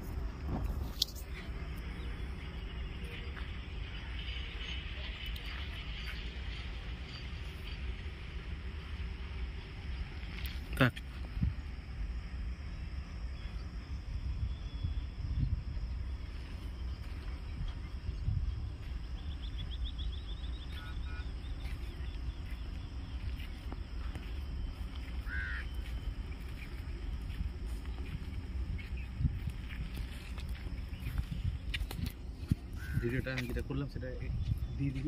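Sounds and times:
wind on microphone: 0:10.2 - 0:35.0.

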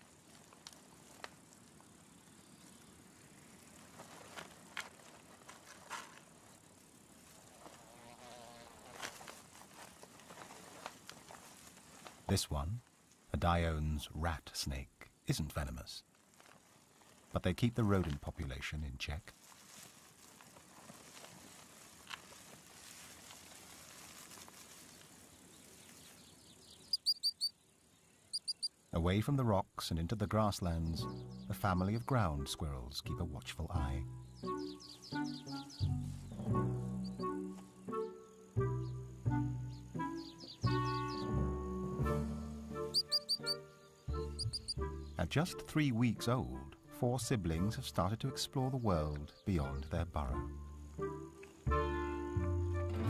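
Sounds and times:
insects buzzing: 0:00.0 - 0:04.5, 0:06.7 - 0:10.5, 0:26.7 - 0:29.0, 0:34.1 - 0:45.2
small clicks and rustles: 0:00.0 - 0:08.0, 0:08.8 - 0:13.3, 0:16.0 - 0:17.4, 0:19.3 - 0:26.4
soft hiss: 0:00.0 - 0:29.8
high chirps: 0:26.8 - 0:27.5, 0:28.3 - 0:28.7, 0:42.6 - 0:45.2.

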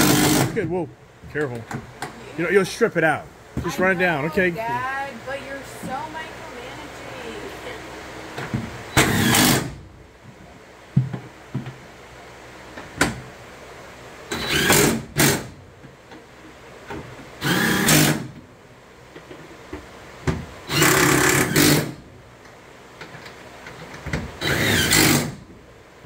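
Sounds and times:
impact driver hammering: 0:00.0 - 0:00.6, 0:20.7 - 0:22.0.

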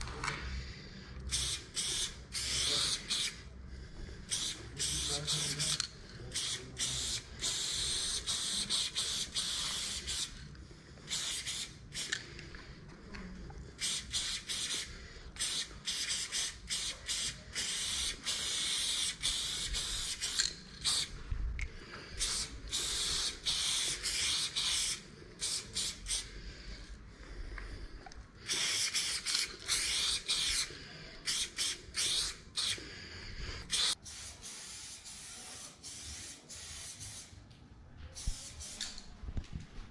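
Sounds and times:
spray paint can hissing: 0:01.3 - 0:03.4, 0:04.3 - 0:10.4, 0:11.1 - 0:12.2, 0:13.8 - 0:21.2, 0:22.1 - 0:26.3, 0:28.4 - 0:32.9, 0:33.6 - 0:37.4, 0:38.2 - 0:39.1.

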